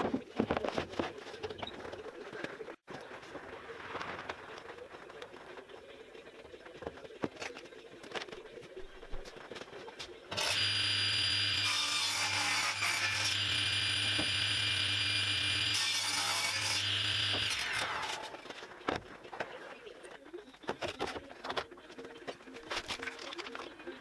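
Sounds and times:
saw cutting through plywood: 10.3 - 18.4
table saw whining: 10.3 - 18.4.

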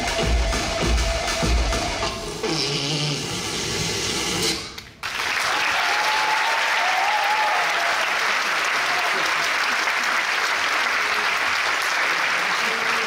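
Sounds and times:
dance music: 0.0 - 4.6
audience applause: 5.0 - 13.0
person cheering: 5.6 - 8.1.

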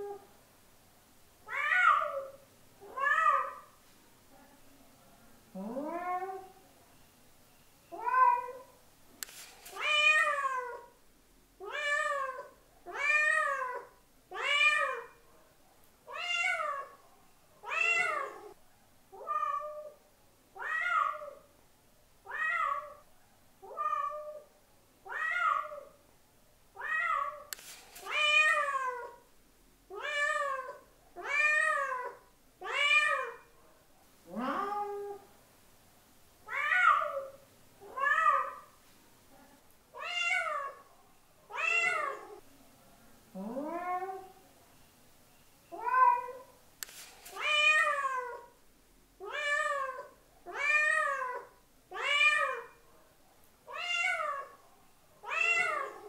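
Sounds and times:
cat meowing: 17.6 - 18.5, 20.6 - 21.4, 25.1 - 25.9, 34.3 - 35.2, 36.5 - 38.7, 40.0 - 40.8, 41.5 - 42.4, 45.7 - 46.5, 49.2 - 52.7, 53.7 - 54.6, 55.2 - 56.0.

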